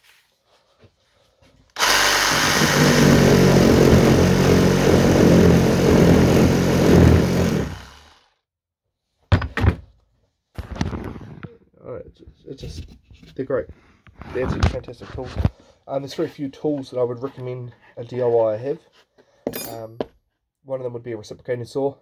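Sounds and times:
reciprocating saw cutting wood: 1.7 - 8.4.

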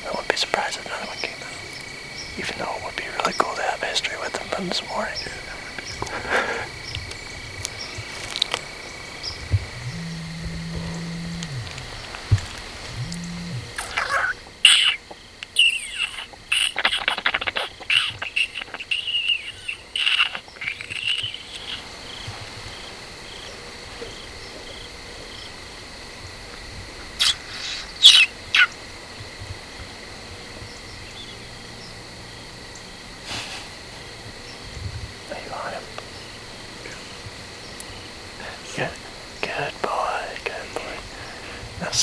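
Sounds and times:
faint chirps: 0.0 - 23.5
insects trilling: 0.0 - 42.0
high wavering animal calls: 4.4 - 22.3, 27.2 - 28.8
sharp animal calls: 4.5 - 22.9, 27.2 - 28.8.

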